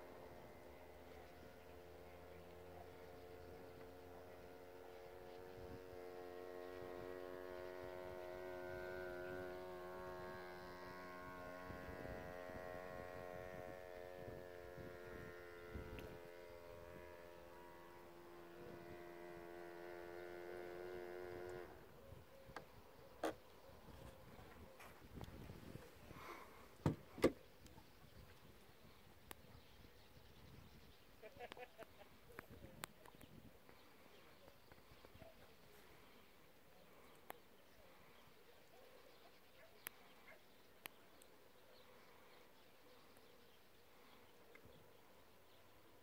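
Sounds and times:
electric motor whine: 0:00.0 - 0:27.4.

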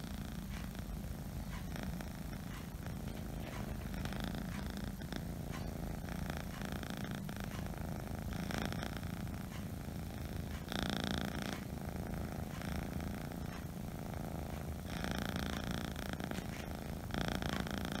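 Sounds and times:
kitten purring: 0:00.0 - 0:18.0.

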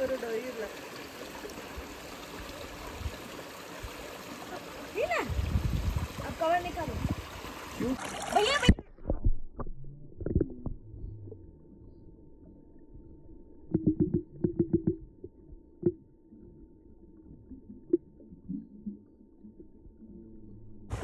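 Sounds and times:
muffled underwater water rumble: 0:08.6 - 0:21.0.

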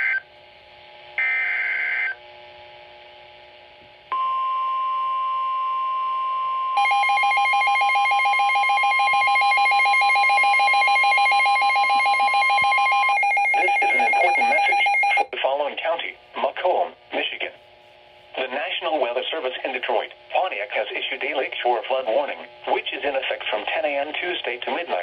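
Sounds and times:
rapidly pulsing alert alarm: 0:06.8 - 0:15.3
steady warning alarm tone: 0:06.8 - 0:15.3
synthesized voice announcement: 0:11.8 - 0:17.6
radio hiss: 0:13.8 - 0:25.0.

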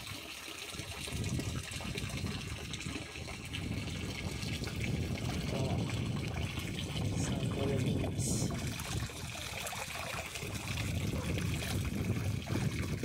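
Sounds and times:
water gurgling from a bag: 0:00.0 - 0:13.0.

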